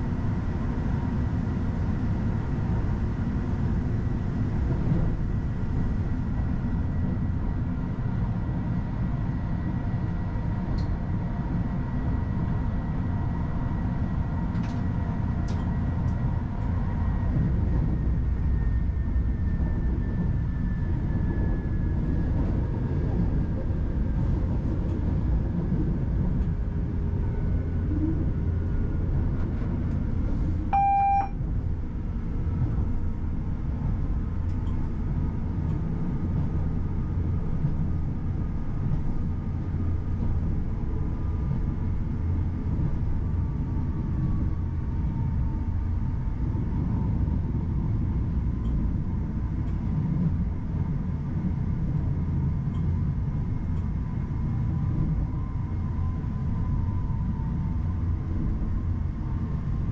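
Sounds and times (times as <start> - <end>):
train rumble: 0.0 - 59.9
short electronic beep: 30.7 - 31.4.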